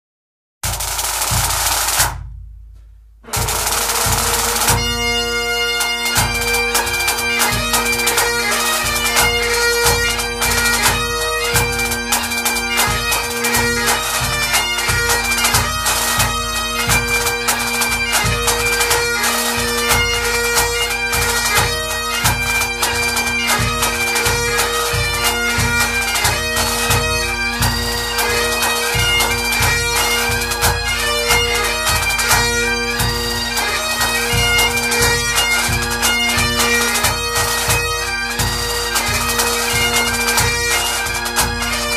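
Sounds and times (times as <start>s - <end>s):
drum roll: 0.6s - 5.0s
drum beats: 0.6s - 41.9s
bagpipes playing a tune: 3.3s - 41.9s.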